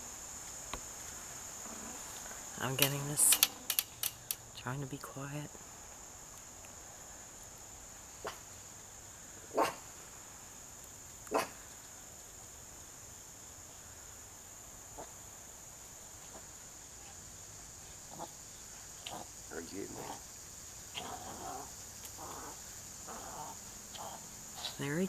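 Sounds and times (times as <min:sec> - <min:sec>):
high-pitched insect chorus: 0:00.0 - 0:25.0
dog barking: 0:09.5 - 0:09.9, 0:11.3 - 0:11.6.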